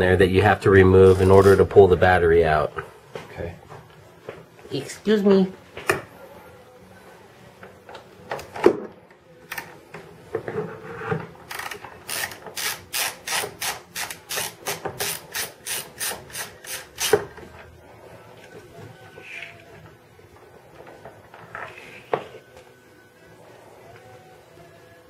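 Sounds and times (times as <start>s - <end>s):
socket ratchet clicking: 11.5s - 17.2s.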